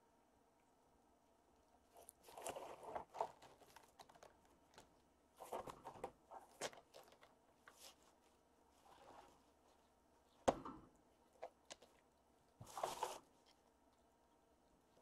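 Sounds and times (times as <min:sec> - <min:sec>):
kittens scratching cardboard: 0:02.0 - 0:09.9, 0:11.3 - 0:13.7.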